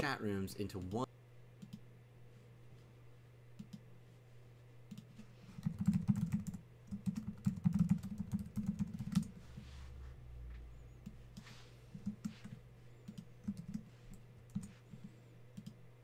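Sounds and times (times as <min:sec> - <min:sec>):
typing on keyboard: 0:04.9 - 0:09.3, 0:12.0 - 0:13.9.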